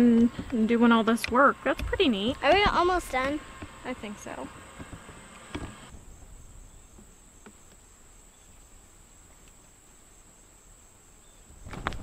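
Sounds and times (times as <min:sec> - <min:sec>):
crickets chirring: 0:05.9 - 0:12.0.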